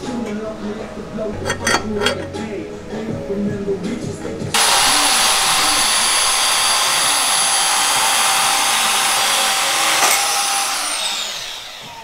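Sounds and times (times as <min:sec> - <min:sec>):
power tool whining: 0:04.6 - 0:12.0.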